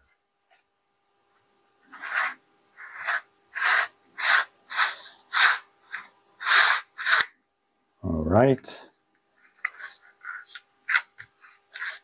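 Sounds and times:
measuring tape scraping hiss: 1.9s - 7.4s, 9.3s - 12.0s.

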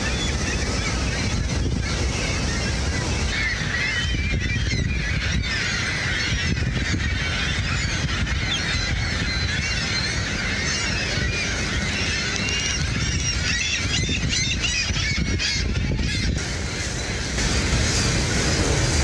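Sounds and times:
waterfall roar: 0.0s - 6.0s, 16.4s - 19.0s
gulls squealing: 0.0s - 19.0s.

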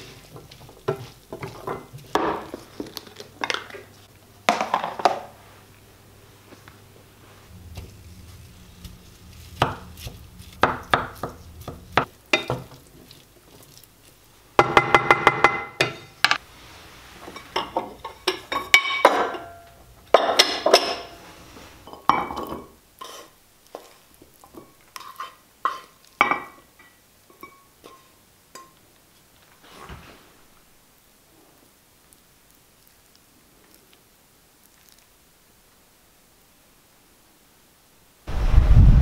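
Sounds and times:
wooden spatula scraping frying pan: 0.0s - 2.9s, 7.3s - 14.1s, 15.6s - 23.9s, 24.5s - 26.0s
low hum: 7.2s - 12.0s, 38.3s - 39.0s.

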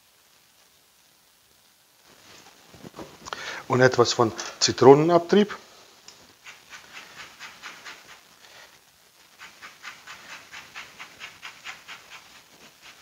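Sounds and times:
lemon grated on metal grater: 6.4s - 8.2s, 9.4s - 13.0s.

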